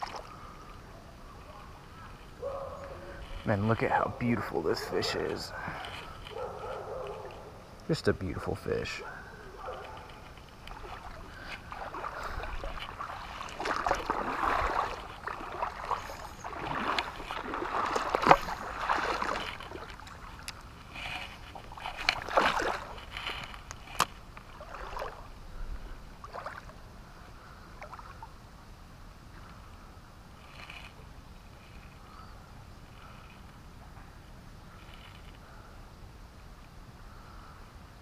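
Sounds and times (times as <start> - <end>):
river water sloshing and splashing: 0.0 - 7.5, 9.6 - 28.4.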